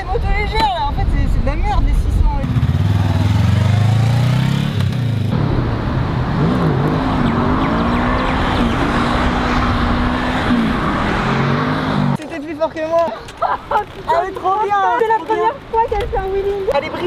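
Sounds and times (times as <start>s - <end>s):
motorcycle engine revving hard: 2.5s - 12.2s.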